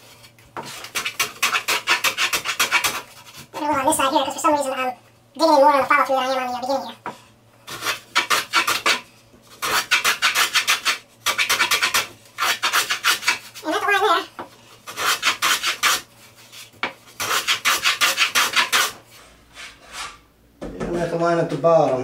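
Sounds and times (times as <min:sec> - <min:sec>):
block plane shaving wood: 0:00.6 - 0:03.4, 0:07.7 - 0:09.0, 0:09.6 - 0:13.7, 0:14.9 - 0:19.0.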